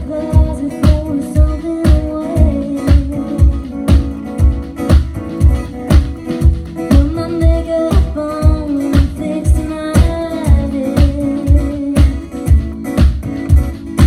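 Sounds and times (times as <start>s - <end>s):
woman singing: 0.0s - 4.3s, 6.8s - 13.1s
acoustic guitars strummed: 0.0s - 14.0s.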